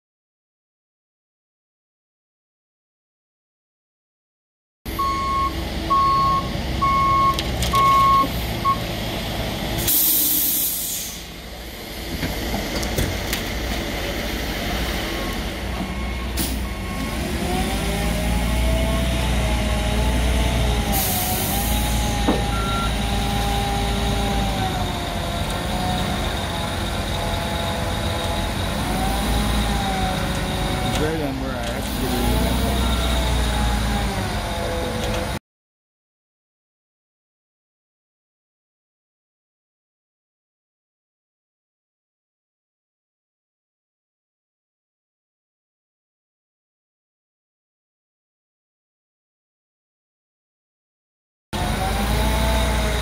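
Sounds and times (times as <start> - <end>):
reversing alarm beeping: 4.9 - 8.9, 15.2 - 17.3, 21.3 - 23.1
diesel engine running: 4.9 - 35.4, 51.6 - 53.0
air hisses: 9.8 - 11.3.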